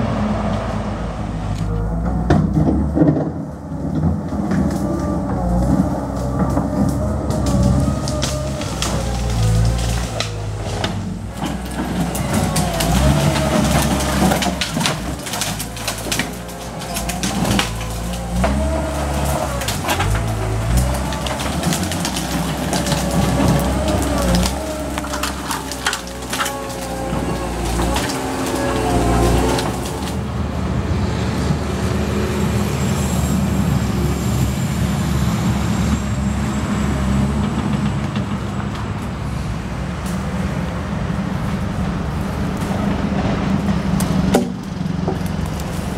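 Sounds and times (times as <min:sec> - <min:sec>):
diesel engine running: 0:00.0 - 0:45.9
wood cracking and snapping: 0:02.3 - 0:30.3, 0:43.6 - 0:45.9.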